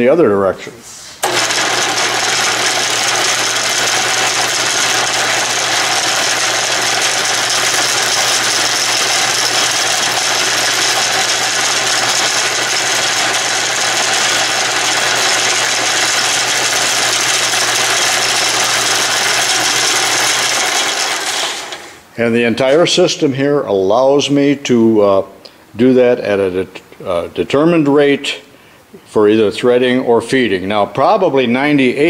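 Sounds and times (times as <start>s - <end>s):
lathe running: 1.2s - 22.1s.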